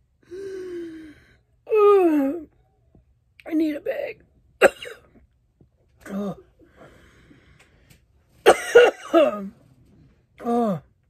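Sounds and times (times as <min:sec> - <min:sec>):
woman coughing and choking: 0:04.6 - 0:05.2, 0:08.4 - 0:09.5.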